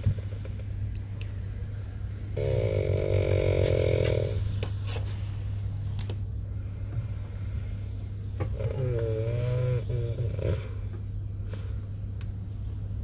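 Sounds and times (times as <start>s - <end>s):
person snoring: 2.3s - 4.4s, 8.5s - 10.9s.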